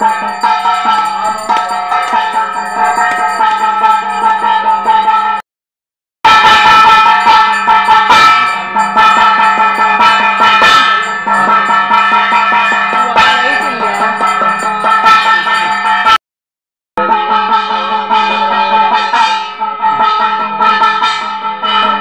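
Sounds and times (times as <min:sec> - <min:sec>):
metallic percussion strokes: 0:00.0 - 0:05.4, 0:06.3 - 0:16.2
temple bells ringing: 0:00.0 - 0:05.4, 0:06.3 - 0:16.2, 0:17.0 - 0:22.0.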